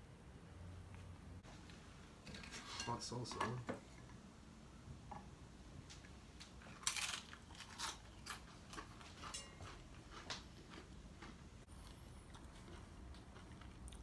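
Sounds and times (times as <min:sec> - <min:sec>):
people chewing crunchy food: 0:06.4 - 0:14.0.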